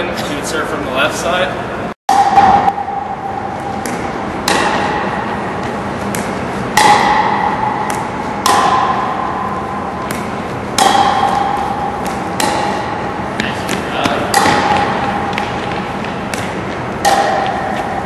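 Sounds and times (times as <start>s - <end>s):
paddles striking plastic balls: 10.0s - 18.0s.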